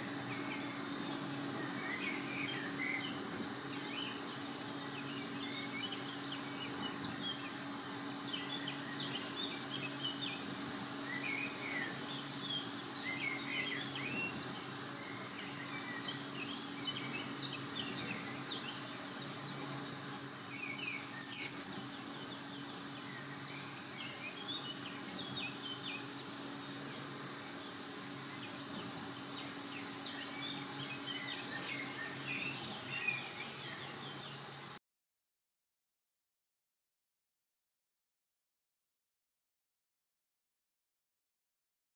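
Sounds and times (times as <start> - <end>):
steady low hum: 14.6 - 25.2
small birds chirping and singing: 20.5 - 26.8, 28.4 - 34.4
sharp high bird notes: 21.2 - 21.7.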